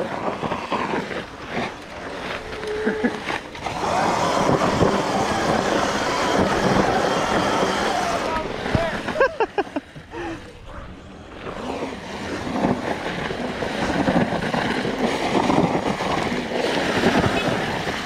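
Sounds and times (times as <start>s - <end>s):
tyres spinning in dirt: 0.0s - 18.0s
wind on microphone: 0.0s - 18.0s
electric motor whines: 2.3s - 9.2s.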